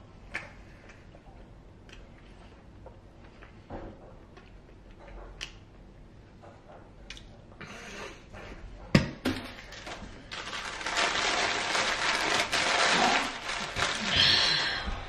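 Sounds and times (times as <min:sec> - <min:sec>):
paper wrapper crumpling: 0:09.7 - 0:14.7.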